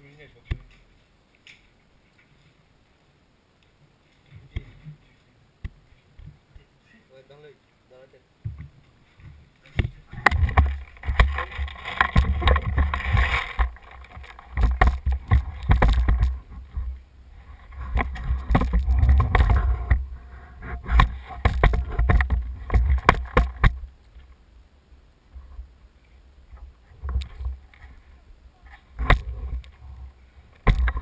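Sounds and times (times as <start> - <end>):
sharp clicks and knocks: 8.4 - 16.9, 17.8 - 23.8, 30.6 - 31.0
wind on microphone: 8.5 - 23.9
camera handling rumble: 10.2 - 16.9, 17.6 - 23.8.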